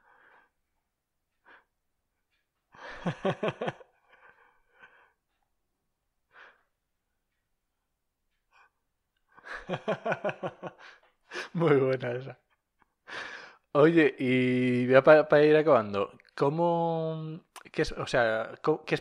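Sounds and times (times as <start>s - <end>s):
person laughing: 2.8s - 4.5s, 9.4s - 11.9s.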